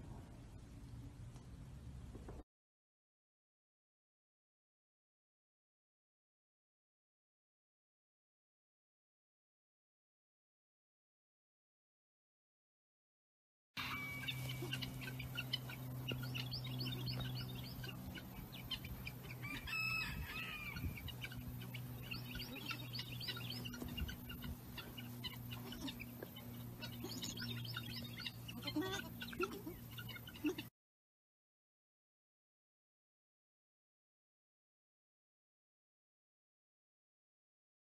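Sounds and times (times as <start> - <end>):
steady low hum: 0.0 - 2.4, 13.8 - 30.7
chickens clucking: 13.8 - 30.7
small birds chirping: 14.2 - 19.8, 20.6 - 30.7.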